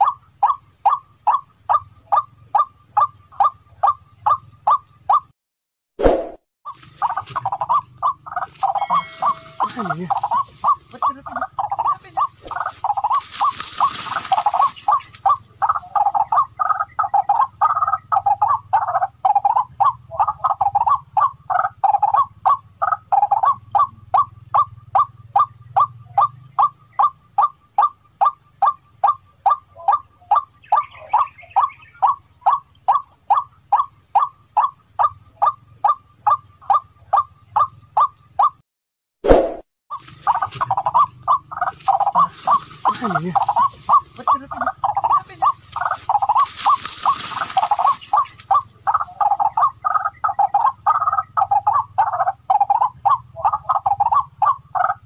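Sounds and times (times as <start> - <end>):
waterhen calling: 6.7 - 38.6, 39.9 - 55.0.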